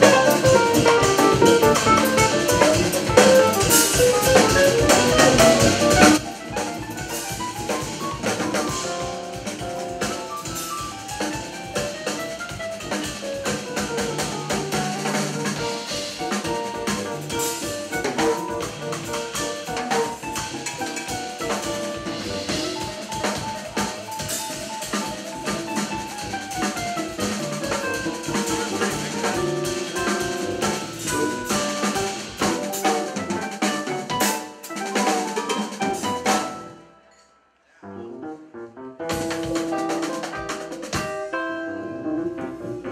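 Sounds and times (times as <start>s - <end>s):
bass: 0.0s - 34.4s, 35.0s - 36.6s, 38.8s - 42.9s
drum kit keeping time: 0.0s - 36.9s, 39.0s - 42.9s
piano: 0.0s - 42.9s.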